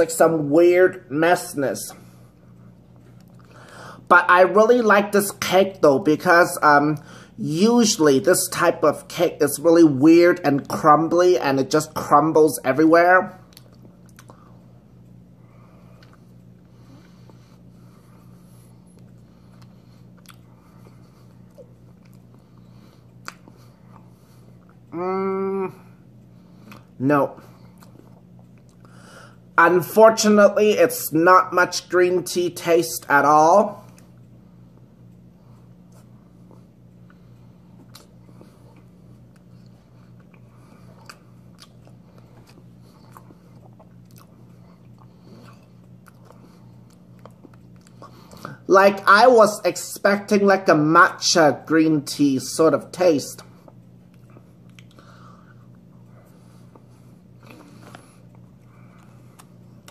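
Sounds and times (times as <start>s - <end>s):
steady low hum: 0.0s - 59.9s
person chewing cake: 1.9s - 4.1s, 13.3s - 29.6s, 33.0s - 49.1s, 53.4s - 59.9s.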